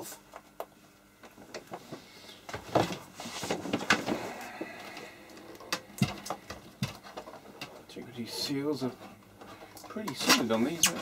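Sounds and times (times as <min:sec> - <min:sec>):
hand tools clicking and tapping: 0:05.5 - 0:07.8.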